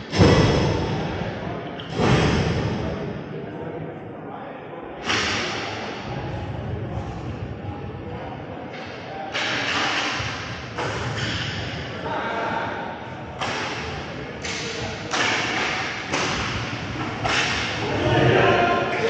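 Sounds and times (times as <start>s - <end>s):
arena noise: 0.0s - 19.0s
players' voices: 0.0s - 19.0s
sticks and puck hitting boards: 13.4s - 18.3s.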